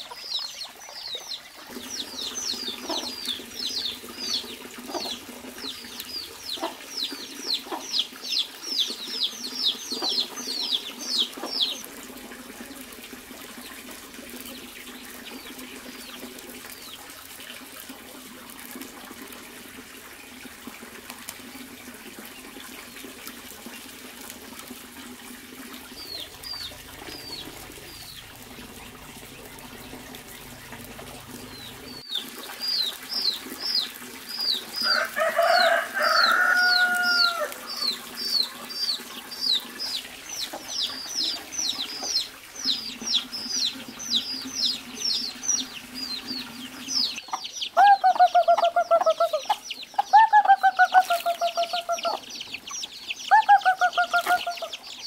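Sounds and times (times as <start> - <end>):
chicks peeping: 0.0 - 11.9, 25.8 - 55.0
hen clucking rapidly: 1.3 - 11.8, 34.5 - 54.9.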